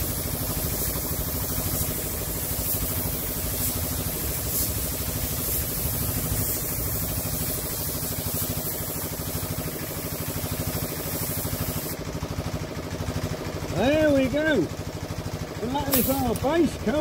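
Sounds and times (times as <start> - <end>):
spray gun hissing: 0.0 - 12.0, 15.8 - 16.4
air compressor chugging: 0.0 - 17.0.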